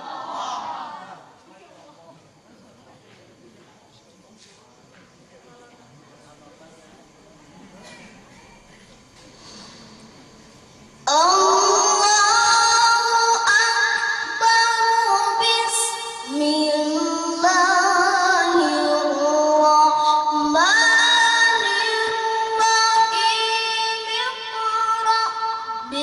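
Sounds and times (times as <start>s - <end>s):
child reciting melodically: 11.1s - 26.0s.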